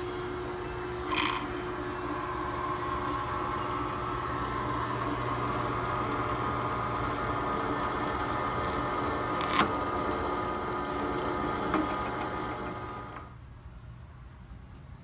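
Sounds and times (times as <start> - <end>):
drill press motor running: 0.0 - 13.3.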